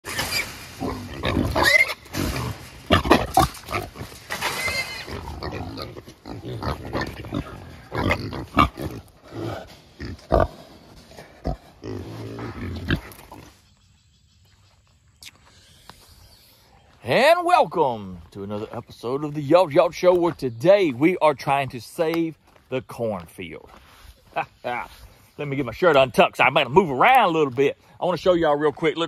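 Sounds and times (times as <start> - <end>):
hogs squealing and grunting: 0.1 - 13.6.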